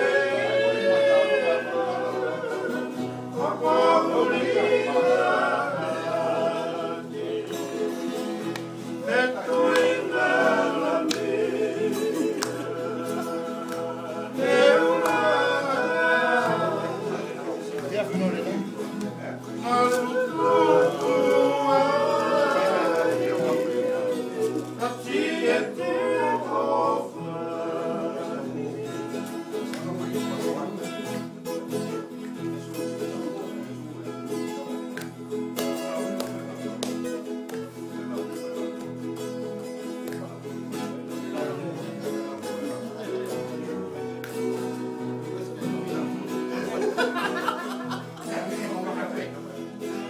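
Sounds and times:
voices singing: 0:00.0 - 0:31.3
acoustic guitars strumming: 0:00.0 - 0:50.0.

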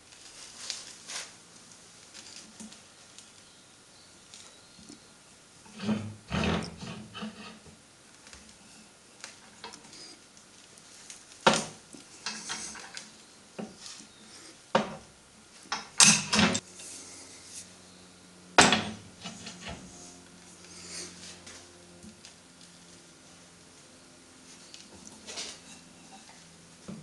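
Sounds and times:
metal clanks and scrapes: 0:05.6 - 0:07.8, 0:12.2 - 0:13.0, 0:18.6 - 0:20.0, 0:25.1 - 0:26.4.

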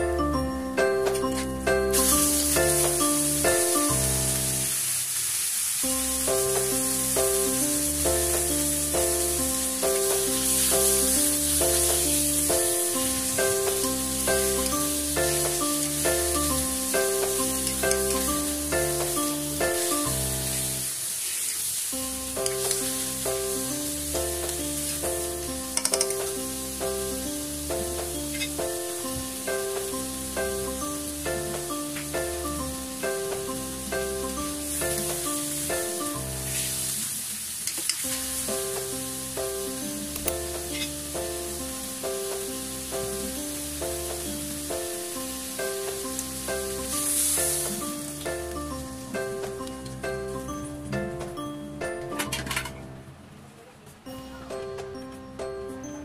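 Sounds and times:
keyboard background music: 0:00.0 - 0:04.8, 0:05.9 - 0:20.9, 0:22.0 - 0:36.9, 0:38.2 - 0:53.3, 0:54.1 - 0:56.0
chicken sizzling in wok: 0:01.7 - 0:50.3
spatula tapping wok: 0:13.4 - 0:19.8, 0:22.4 - 0:23.0, 0:25.7 - 0:26.4
spatula clicking against pan: 0:25.8 - 0:26.3.

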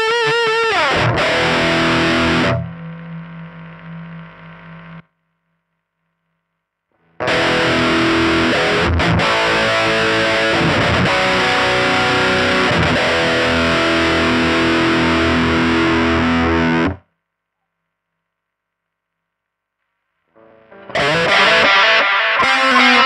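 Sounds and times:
distorted electric guitar chords: 0:00.0 - 0:05.1, 0:07.0 - 0:17.1, 0:20.4 - 0:23.0.

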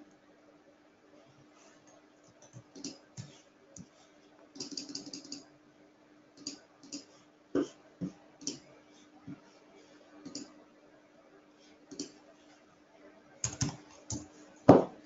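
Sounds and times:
faint steady hum: 0:00.0 - 0:15.0
mouse and keyboard clicking: 0:04.6 - 0:05.4.

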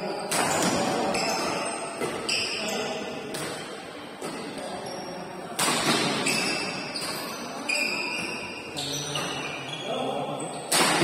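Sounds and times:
rackets striking shuttlecock: 0:00.2 - 0:02.6, 0:05.6 - 0:07.3, 0:10.7 - 0:11.0.

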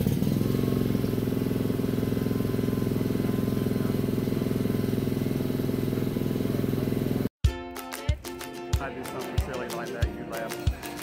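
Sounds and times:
lawn mower engine running: 0:00.0 - 0:07.3.

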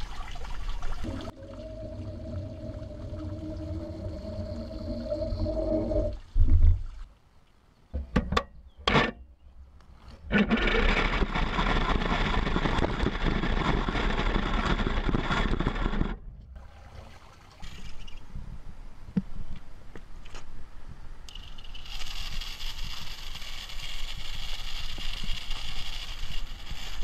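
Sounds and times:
water splashing: 0:00.0 - 0:07.1
small electric motor whining: 0:21.3 - 0:27.0.

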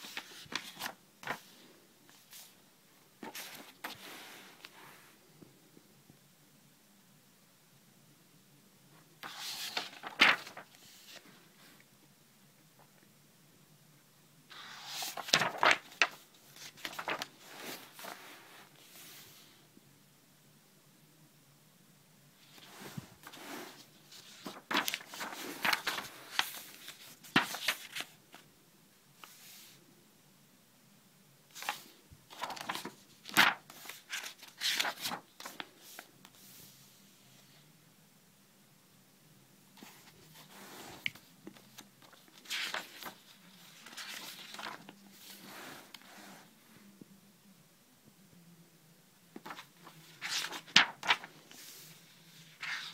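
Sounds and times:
paper pages turning: 0:00.0 - 0:02.6, 0:03.2 - 0:04.8, 0:09.2 - 0:11.3, 0:14.5 - 0:19.3, 0:22.5 - 0:28.4, 0:31.5 - 0:36.6, 0:39.8 - 0:46.1, 0:49.3 - 0:52.9.

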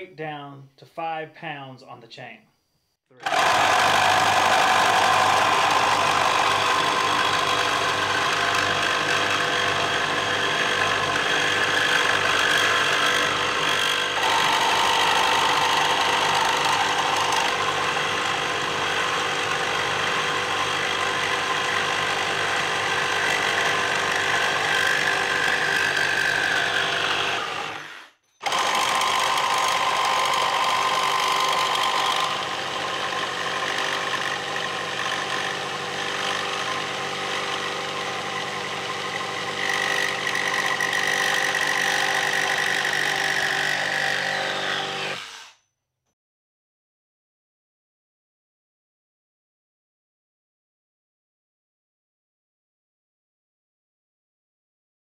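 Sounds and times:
reciprocating saw cutting metal: 0:03.2 - 0:45.7.

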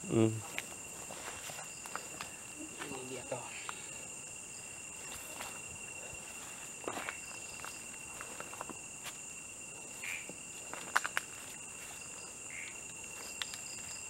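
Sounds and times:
crickets and insects trilling: 0:00.0 - 0:14.0.

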